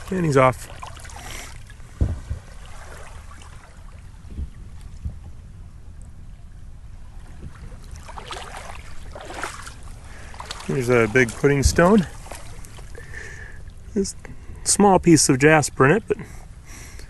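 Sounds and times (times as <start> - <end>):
waves lapping on cobbles: 0.0 - 4.3, 7.2 - 13.8
wind rumble on microphone: 1.6 - 13.0
soft knocks: 2.0 - 2.5.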